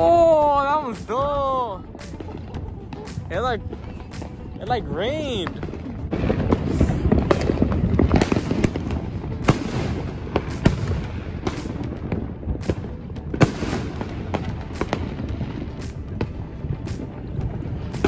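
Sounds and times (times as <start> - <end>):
fireworks cracking and banging: 0.0 - 18.0
loud firework bangs: 5.4 - 18.0.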